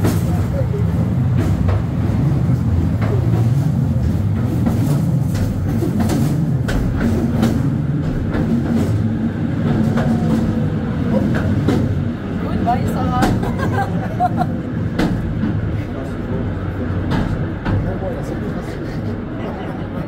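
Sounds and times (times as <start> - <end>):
railway car rumbling on rails: 0.0 - 20.0.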